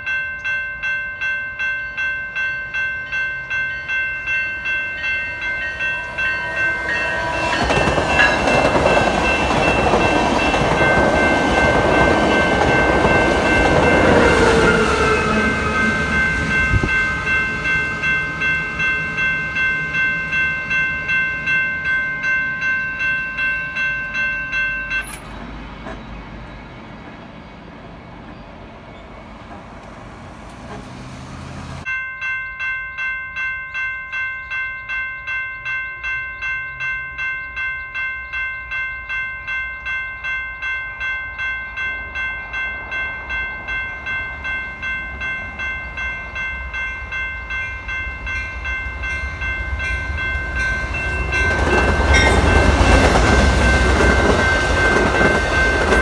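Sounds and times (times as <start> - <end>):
passenger train passing: 0.0 - 56.0
railroad crossing bell ringing: 0.0 - 56.0
train horn: 14.4 - 17.7.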